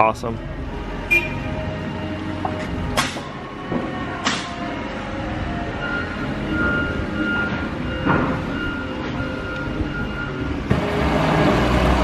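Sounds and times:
diesel engine running: 0.4s - 12.0s
backup alarm beeping: 5.5s - 10.6s.

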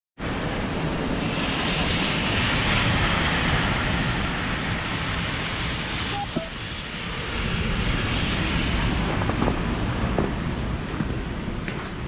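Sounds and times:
traffic on wet street: 0.2s - 12.0s
wind buffeting microphone: 6.8s - 12.0s.

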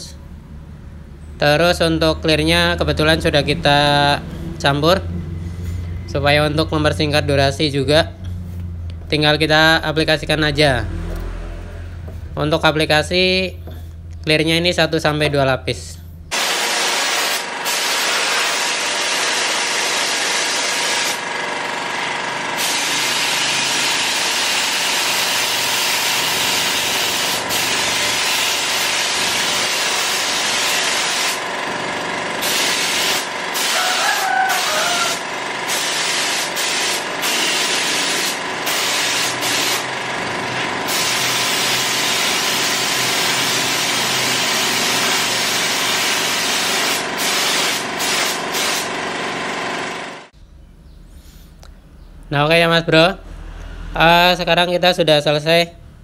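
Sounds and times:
spray gun hissing: 16.4s - 21.2s, 22.6s - 31.4s, 32.4s - 39.9s, 40.8s - 48.9s.

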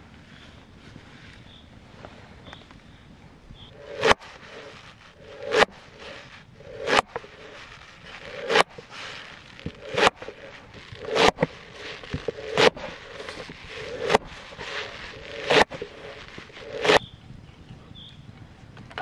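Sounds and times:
lever knife chopping stalks: 3.8s - 17.0s.

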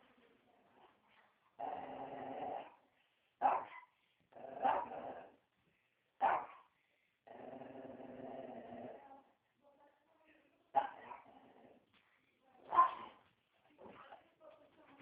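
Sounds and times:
dog growling: 1.6s - 2.9s, 4.3s - 5.4s, 7.2s - 9.0s, 11.2s - 11.9s
dog barking: 3.4s - 3.9s, 4.6s - 4.9s, 6.2s - 6.7s, 12.7s - 13.2s.

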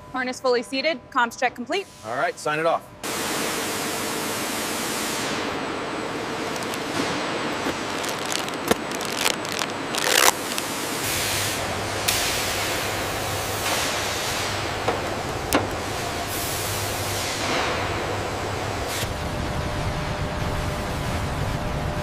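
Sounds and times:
metallic clicks and knocks: 14.9s - 16.0s.

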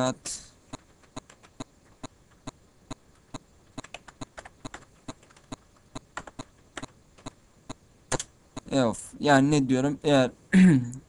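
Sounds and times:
computer keyboard typing: 0.7s - 8.7s.

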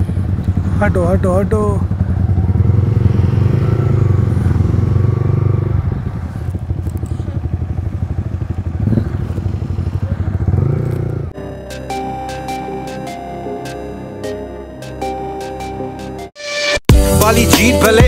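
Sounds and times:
motorcycle engine running: 0.0s - 11.4s
music: 11.4s - 18.0s.

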